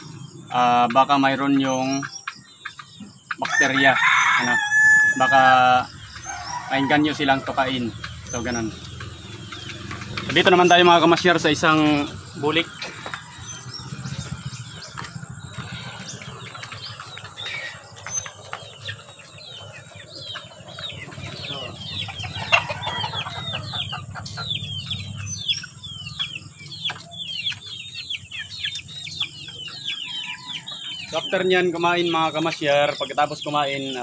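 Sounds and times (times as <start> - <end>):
chickens chirping: 0.0 - 34.0.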